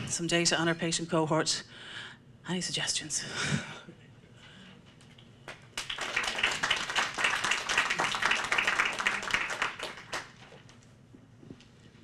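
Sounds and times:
audience applause: 0:05.8 - 0:10.6.

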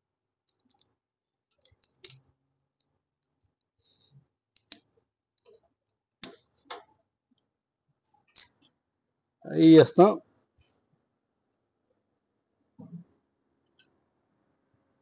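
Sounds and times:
small plastic clicks: 0:00.4 - 0:06.9, 0:08.3 - 0:08.8.

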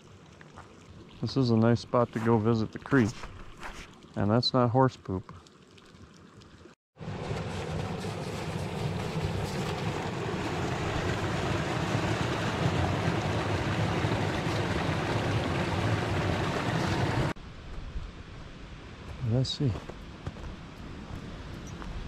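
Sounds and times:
creek rushing over rocks: 0:07.0 - 0:17.4.

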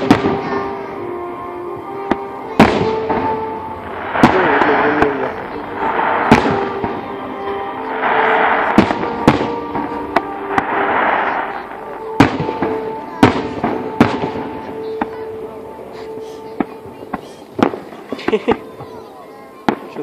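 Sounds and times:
firework bangs: 0:00.0 - 0:00.7, 0:02.1 - 0:15.5, 0:16.4 - 0:19.0
hissing firework crackle: 0:03.8 - 0:14.3.

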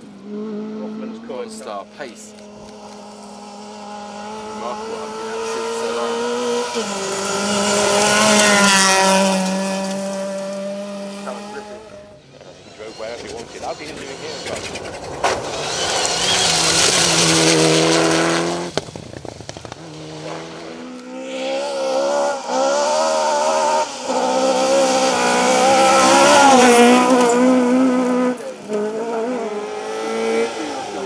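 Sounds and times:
rally car engines revving: 0:00.0 - 0:31.0
gravel spraying: 0:12.6 - 0:20.9.

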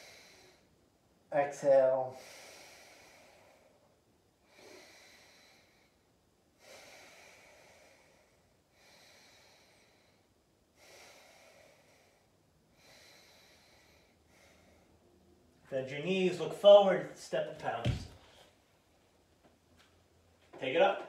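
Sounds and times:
faint slow breathing: 0:00.0 - 0:00.8, 0:02.1 - 0:15.2.

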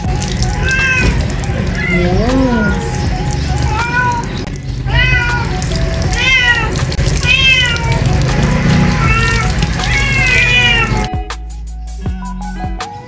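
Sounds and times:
water splashing: 0:00.0 - 0:11.1
music: 0:00.0 - 0:13.0
kitten meowing: 0:00.4 - 0:03.0, 0:03.6 - 0:11.1.

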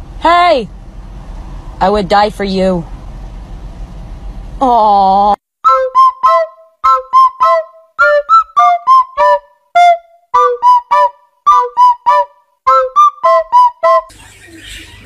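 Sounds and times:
rubber squeaky toy squeaking: 0:05.7 - 0:14.1.

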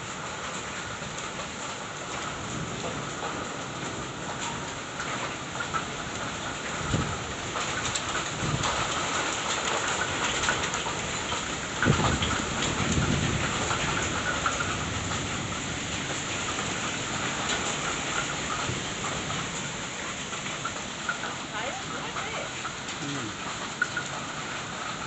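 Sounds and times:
heavy rain on foliage and roof: 0:00.0 - 0:25.0
low thunder rumble: 0:11.8 - 0:17.7.

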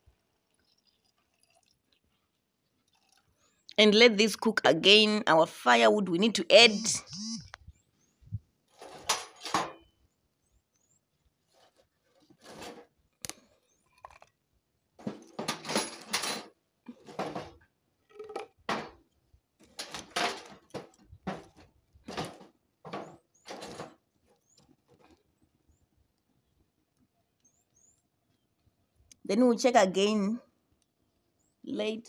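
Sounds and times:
firewood clattering: 0:15.0 - 0:25.2.

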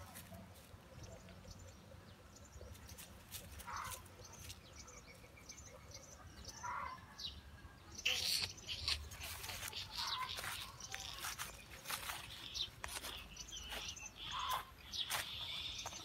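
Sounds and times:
small birds chirping: 0:00.0 - 0:16.0
dry leaves rustling: 0:02.9 - 0:04.6, 0:08.8 - 0:16.0.

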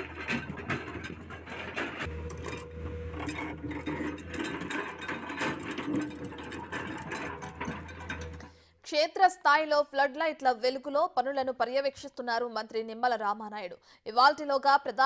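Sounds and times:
heavy machinery engine hum: 0:00.0 - 0:08.5
stones and metal clattering: 0:00.0 - 0:08.6.

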